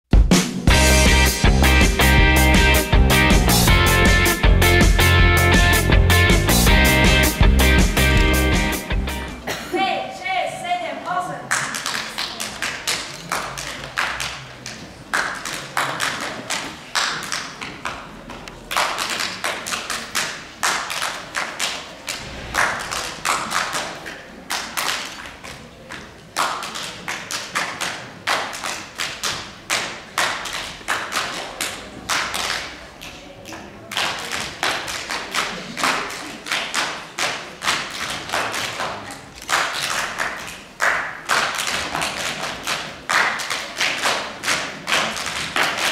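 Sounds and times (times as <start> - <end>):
hand claps: 11.5 - 18.0, 18.7 - 45.9.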